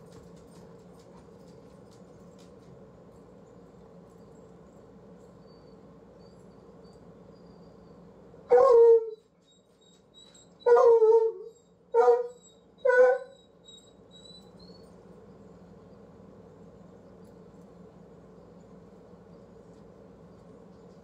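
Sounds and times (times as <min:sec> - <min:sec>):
dog barking: 0:08.5 - 0:09.1, 0:12.0 - 0:13.3.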